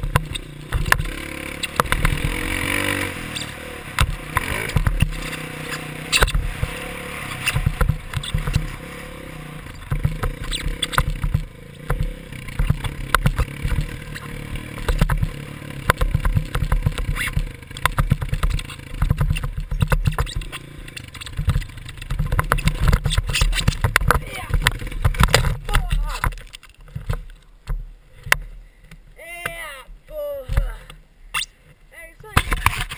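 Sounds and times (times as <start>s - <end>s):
dirt bike engine revving: 0.0s - 26.2s
sharp knocks and rumbling: 0.0s - 28.5s.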